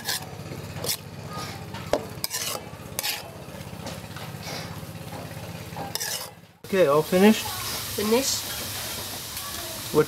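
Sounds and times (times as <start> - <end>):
metal ladle scraping a wok: 0.0 - 6.4
frying sizzle: 1.0 - 10.0.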